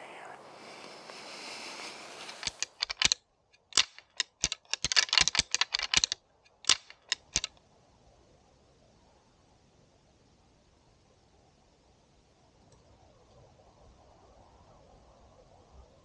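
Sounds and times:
antlers clacking together: 0:02.2 - 0:07.5.

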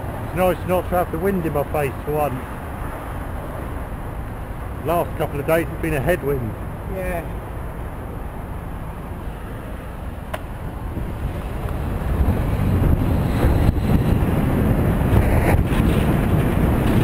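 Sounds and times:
wind rumbling on microphone: 0:10.5 - 0:17.0.

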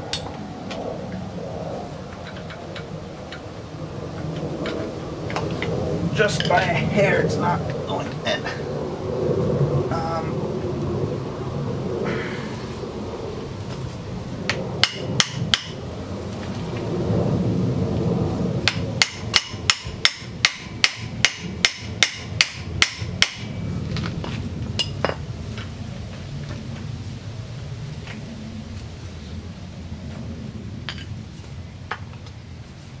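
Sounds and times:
sharp metallic tapping: 0:14.5 - 0:15.8, 0:18.6 - 0:23.6.

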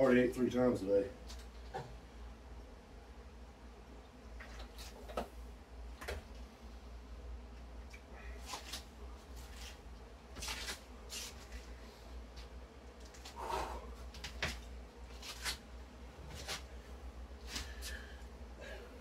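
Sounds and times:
steady low hum: 0:00.0 - 0:19.0
person breathing: 0:13.2 - 0:14.0, 0:17.5 - 0:19.0.

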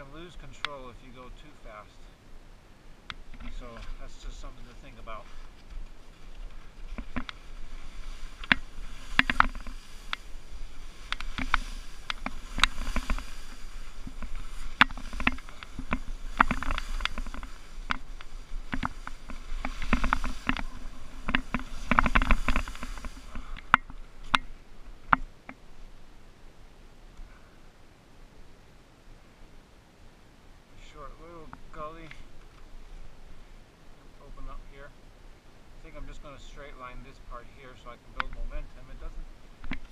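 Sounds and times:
sharp clicks and clatters of skis: 0:00.5 - 0:00.9, 0:03.1 - 0:25.6, 0:38.2 - 0:39.0, 0:39.6 - 0:39.9
wind rumble on microphone: 0:03.0 - 0:26.4
skis scraping through snow: 0:03.5 - 0:24.7.

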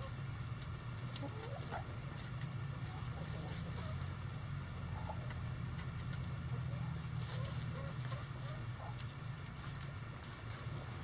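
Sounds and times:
chickens scratching on floor: 0:00.0 - 0:04.2, 0:04.9 - 0:11.0
steady low hum: 0:00.0 - 0:11.0
chickens clucking: 0:01.0 - 0:04.2, 0:04.8 - 0:09.1.

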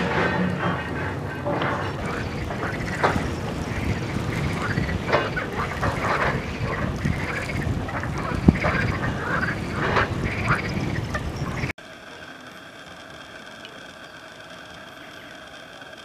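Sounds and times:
chorus of waterside animal calls: 0:00.0 - 0:16.0
steady hum with faint tones: 0:00.0 - 0:16.0.

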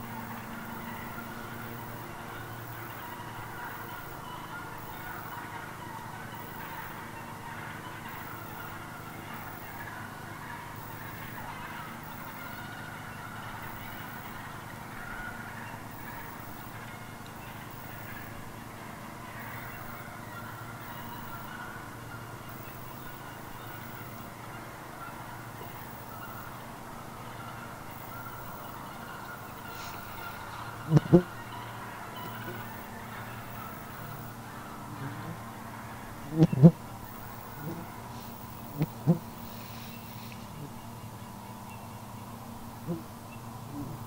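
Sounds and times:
turkeys calling: 0:00.0 - 0:44.0.

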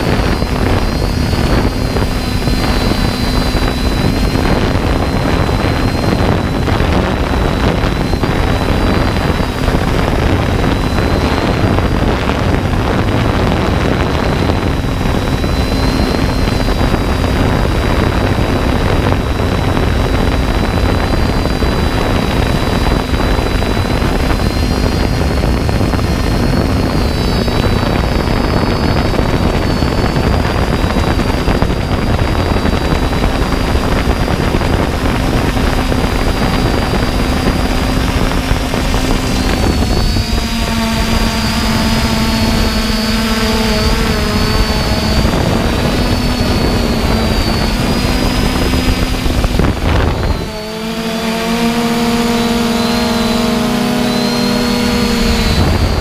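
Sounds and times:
drone motors whining: 0:00.0 - 0:56.0
low wind rumble: 0:00.0 - 0:56.0.

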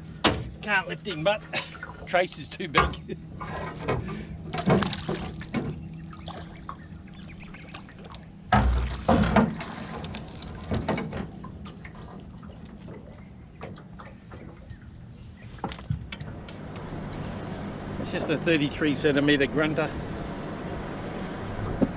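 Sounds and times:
fish splashing: 0:04.6 - 0:10.0
knocks on boat: 0:08.5 - 0:09.6.

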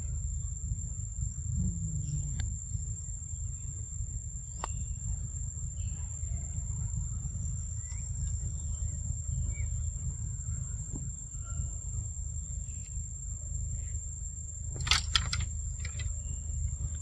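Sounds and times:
steady low rumble: 0:00.0 - 0:17.0
sharp click: 0:14.8 - 0:16.2.

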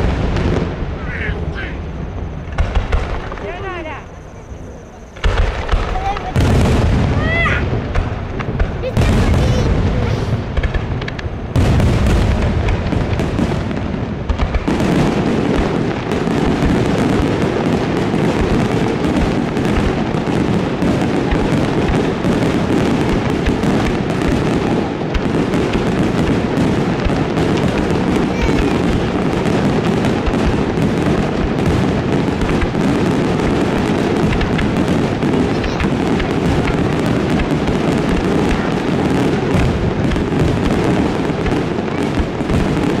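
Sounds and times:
fireworks bursting and crackling: 0:00.0 - 0:43.0.

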